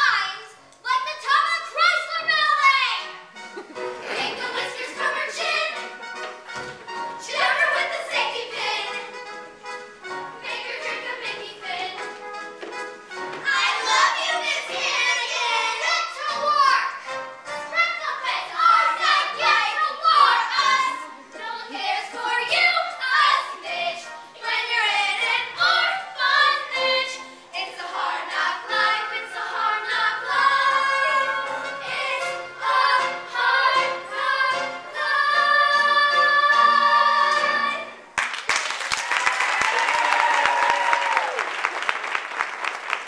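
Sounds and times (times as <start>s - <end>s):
musical accompaniment: 0.0s - 43.0s
girls singing in chorus: 4.0s - 5.8s, 7.2s - 9.1s, 18.2s - 38.0s
audience applause: 38.2s - 43.0s.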